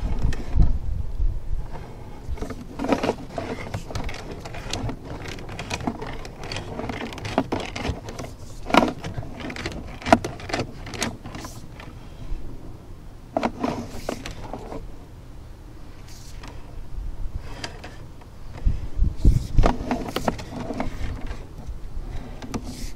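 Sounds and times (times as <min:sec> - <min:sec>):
push cable clicking and rustling: 0:02.3 - 0:12.0, 0:13.3 - 0:14.9, 0:17.5 - 0:22.9.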